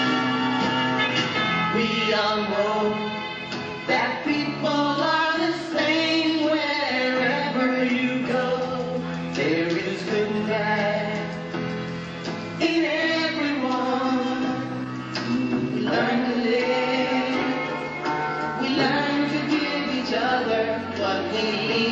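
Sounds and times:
group of voices singing: 3.9s - 11.3s, 15.3s - 21.9s.

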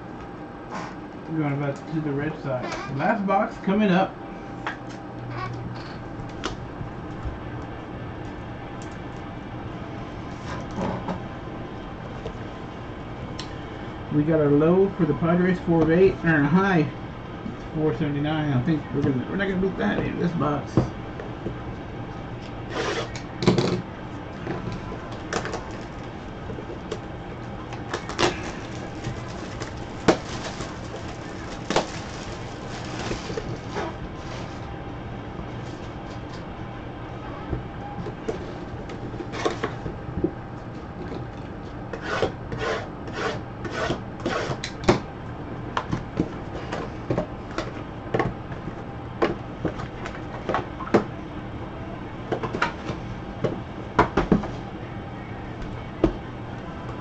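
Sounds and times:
steady low hum: 0.0s - 57.0s
card packs rustling: 27.8s - 34.7s.

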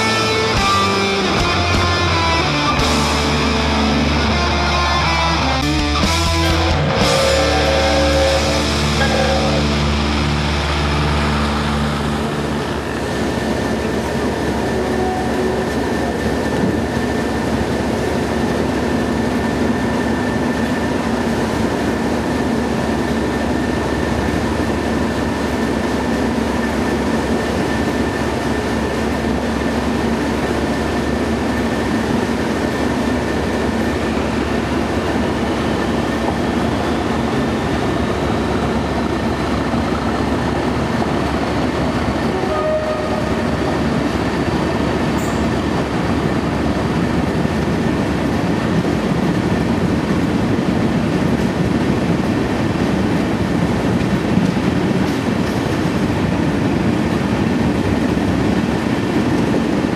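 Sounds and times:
whine rising in pitch: 0.0s - 15.6s
diesel locomotive engine working hard: 0.0s - 59.9s.

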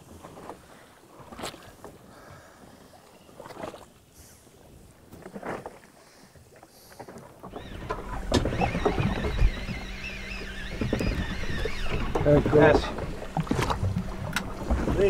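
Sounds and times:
boat engine low rumble: 4.4s - 15.0s.

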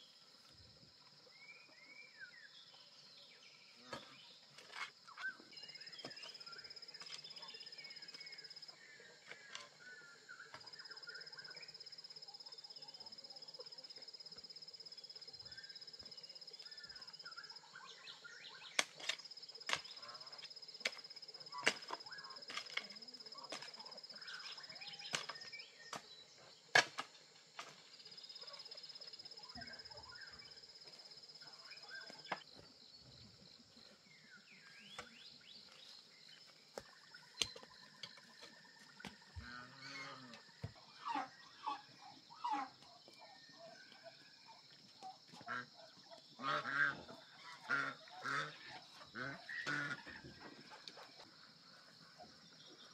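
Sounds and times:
bird chirps: 5.1s - 26.5s, 34.2s - 40.0s
hand tool digging into ground: 18.8s - 20.0s, 20.8s - 23.8s.

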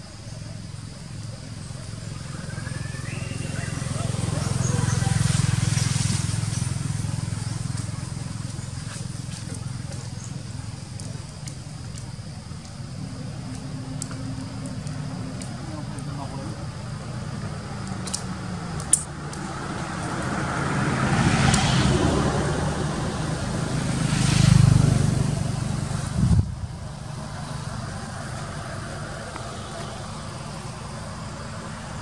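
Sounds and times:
road vehicles passing: 0.0s - 32.0s
sharp clicks: 17.8s - 19.4s.

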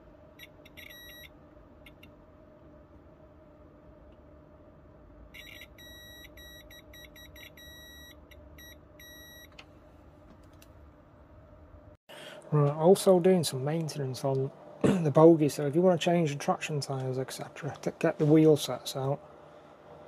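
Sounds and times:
faint steady hum: 0.0s - 20.0s
multimeter continuity beeps: 0.4s - 2.1s, 5.3s - 9.6s.

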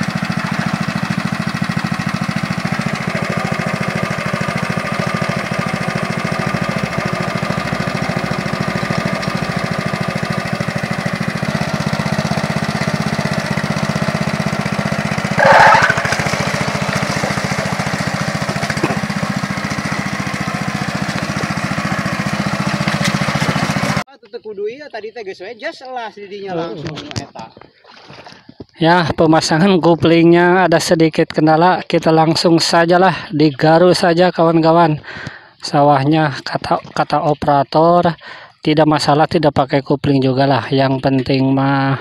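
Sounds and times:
small petrol engine running: 0.0s - 24.1s, 41.2s - 42.0s.

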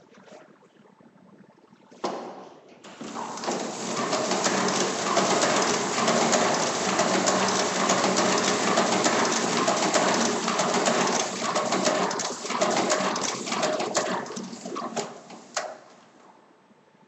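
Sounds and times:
hand-cranked duplicator clicking: 3.1s - 14.5s.

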